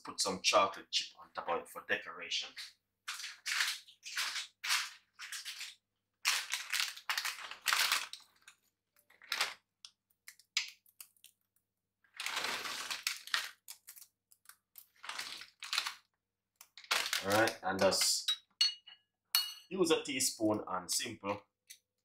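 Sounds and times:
plastic packet crinkling: 3.1s - 11.4s, 12.1s - 18.1s.

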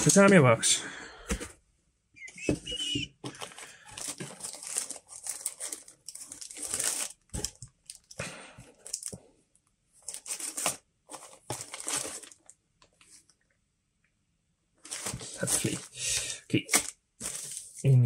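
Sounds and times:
plastic bags crinkling: 3.3s - 9.2s, 10.0s - 12.5s, 14.8s - 17.9s.

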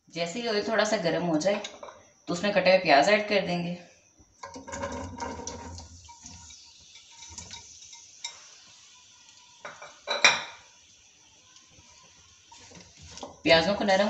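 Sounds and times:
onions tumbling into pot: 4.4s - 6.2s
glass bowl clinking on pot: 9.6s - 10.6s.

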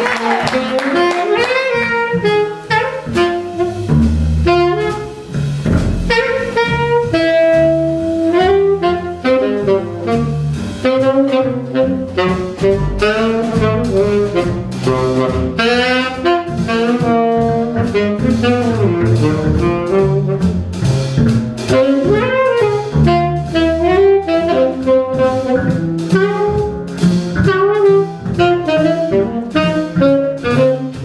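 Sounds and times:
double bass: 0.0s - 31.0s
drum kit with cymbals: 0.0s - 31.0s
piano: 0.0s - 31.0s
saxophone melody: 0.3s - 31.0s.

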